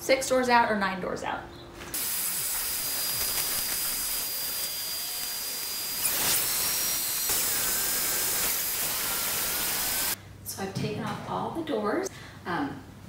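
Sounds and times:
vacuum cleaner running: 2.0s - 10.2s.

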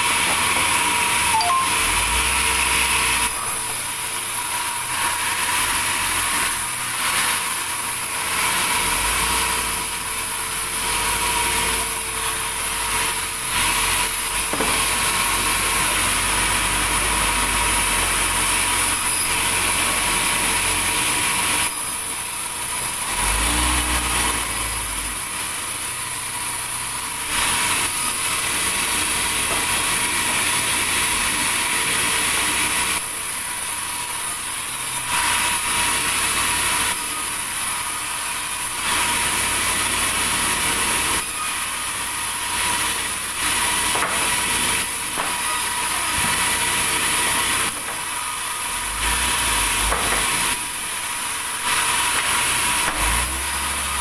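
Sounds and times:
band saw cutting log: 0.0s - 54.0s.

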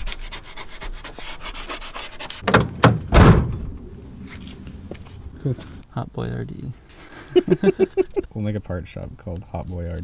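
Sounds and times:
loud thumps: 2.4s - 3.9s.

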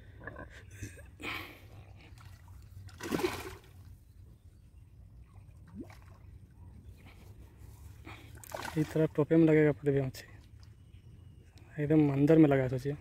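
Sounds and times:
fish splashing in water: 2.1s - 3.8s, 8.4s - 9.0s.

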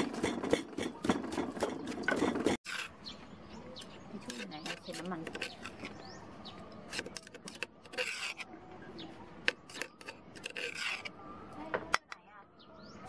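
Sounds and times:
dry scraping in bowl: 0.0s - 3.0s, 4.2s - 6.0s, 6.9s - 8.5s, 9.5s - 11.1s.

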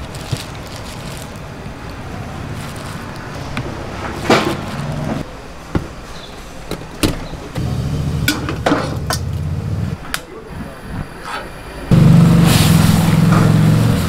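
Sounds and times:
low machine hum: 7.6s - 10.0s, 11.9s - 14.0s
metal pans clanking: 8.2s - 9.4s.

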